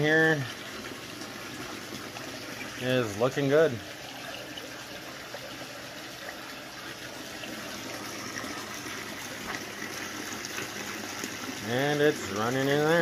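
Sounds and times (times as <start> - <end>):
water running through sluice: 0.0 - 13.0.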